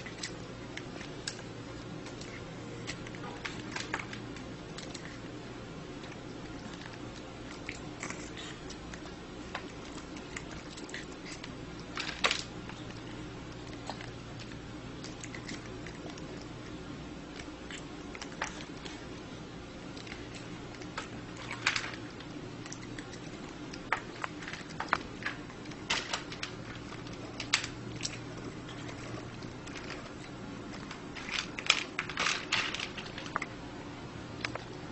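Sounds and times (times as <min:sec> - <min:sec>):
steady low hum: 0:00.0 - 0:34.9.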